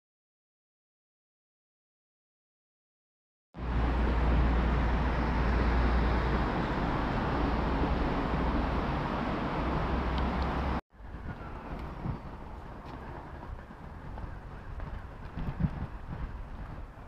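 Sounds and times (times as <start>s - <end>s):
quiet outdoor ambience: 3.6s - 17.0s.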